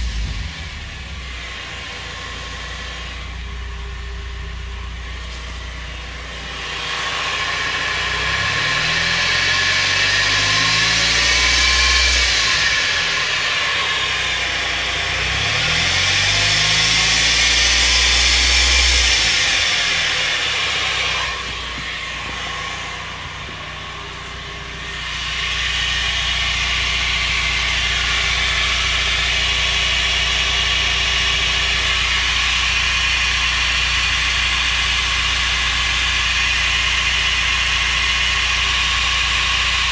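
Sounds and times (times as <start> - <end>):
car drivetrain whine rising and falling: 0.0 - 39.9.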